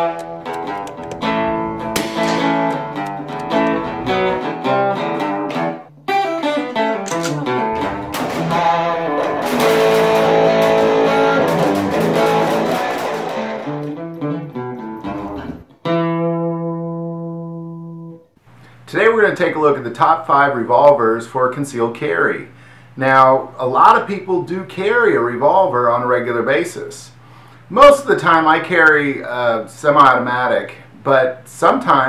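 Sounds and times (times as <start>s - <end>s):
guitar music: 0.0s - 18.3s.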